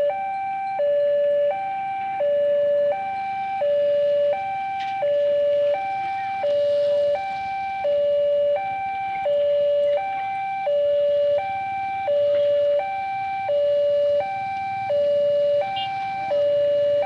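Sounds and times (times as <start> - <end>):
two-tone electronic warning alarm: 0.0 - 17.0.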